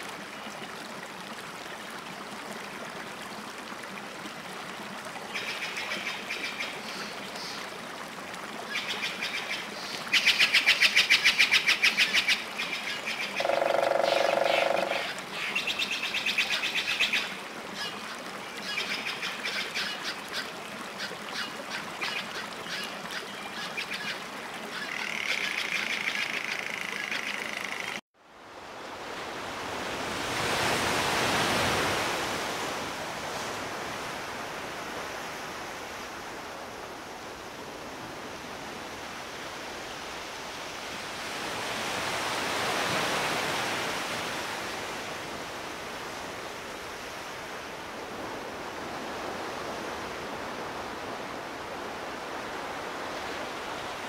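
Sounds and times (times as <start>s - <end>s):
waves washing on beach: 27.6s - 54.0s.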